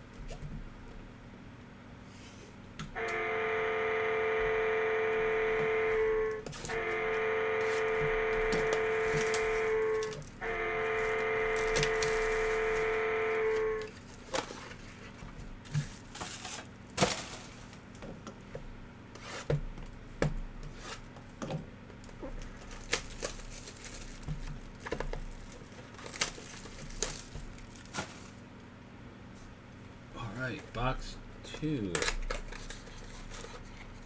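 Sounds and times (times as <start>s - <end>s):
plastic wrap crinkling: 11.0s - 12.8s, 22.0s - 28.4s.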